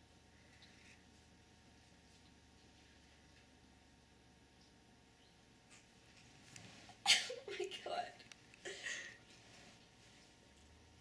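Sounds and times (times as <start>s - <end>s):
faint soft rustle: 5.8s - 7.0s, 9.3s - 10.8s.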